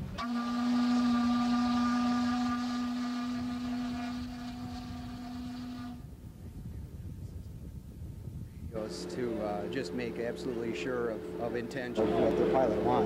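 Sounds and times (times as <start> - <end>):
steam whistle blast: 0.0 - 6.0.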